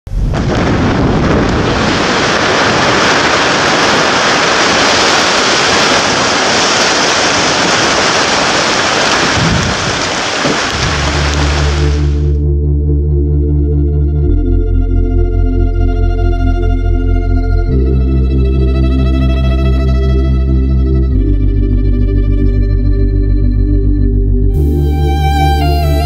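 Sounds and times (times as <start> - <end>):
loud steady roar: 0.1 - 12.8
music with low sustained tones: 10.9 - 26.0.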